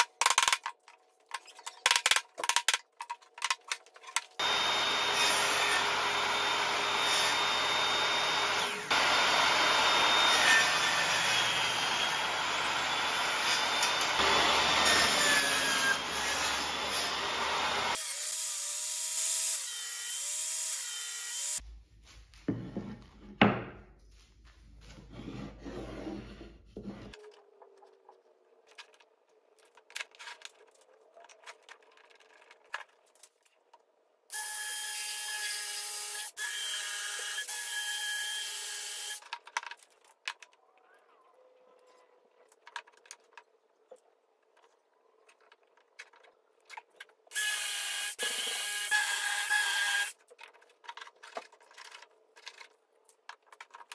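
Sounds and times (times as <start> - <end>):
power tool running: 4.4 - 18.0
table saw cutting wood: 4.4 - 21.6, 34.3 - 39.2, 47.3 - 50.2
boards knocking on workbench: 22.5 - 23.9.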